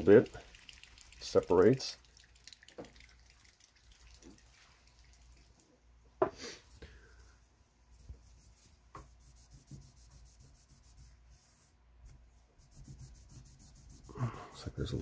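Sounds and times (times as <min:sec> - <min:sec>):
cloth rubbing on metal: 0:07.8 - 0:15.0.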